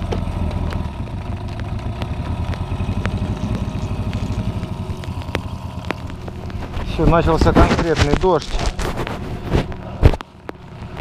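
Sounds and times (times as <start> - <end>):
outboard motor running: 0.0 - 8.4.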